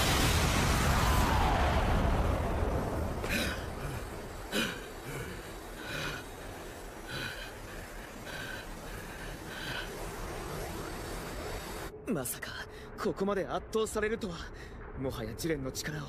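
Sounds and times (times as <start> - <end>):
explosion rumble: 0.0 - 7.0
heavy labored breathing: 3.2 - 11.9.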